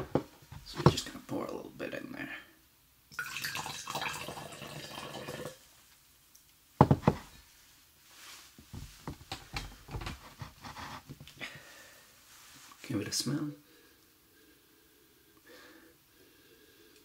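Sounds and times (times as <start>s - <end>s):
wine pouring into glass: 3.1s - 5.6s
glass mug knocking: 6.8s - 7.3s
rustling: 7.1s - 11.4s, 12.1s - 13.0s.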